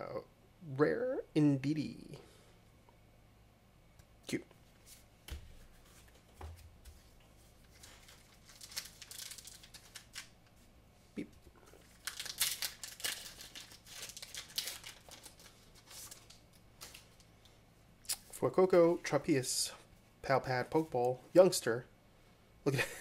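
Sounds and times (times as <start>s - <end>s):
card wrapper tearing and crinkling: 7.7s - 10.4s, 11.8s - 17.2s.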